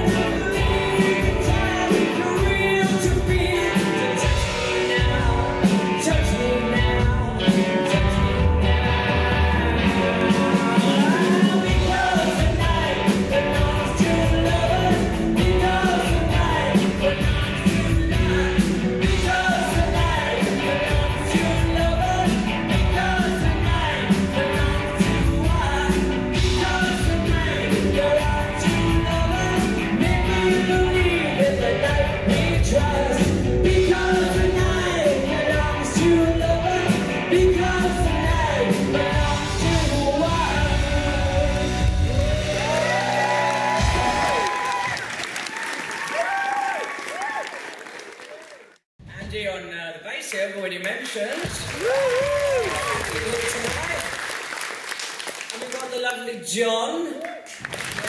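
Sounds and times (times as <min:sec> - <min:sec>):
bass guitar: 0:00.0 - 0:44.9
electric guitars: 0:00.0 - 0:45.0
drums: 0:00.0 - 0:47.4, 0:49.0 - 0:50.0, 0:51.3 - 0:55.8.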